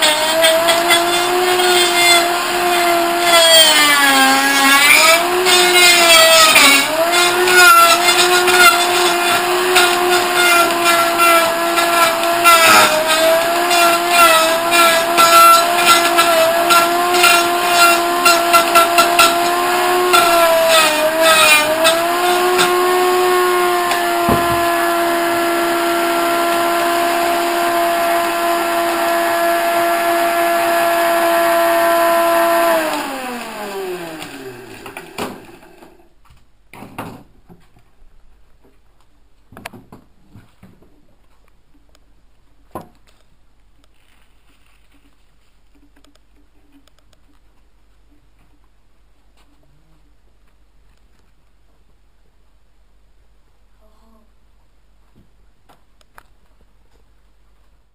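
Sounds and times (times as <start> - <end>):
blender motor whining: 0.0 - 36.1
dull knock: 24.2 - 24.7.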